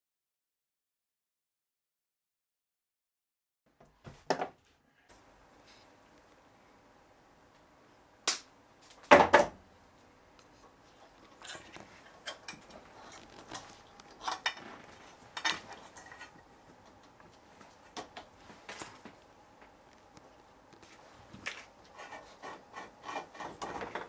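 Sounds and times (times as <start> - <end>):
metal lamp parts clicking: 11.4 - 14.6.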